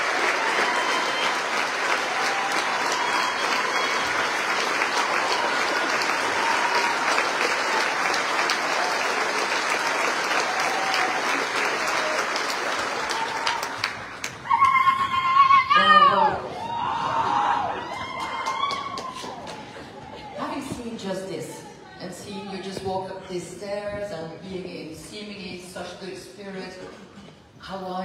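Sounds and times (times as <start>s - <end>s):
audience applauding: 0.0s - 20.4s.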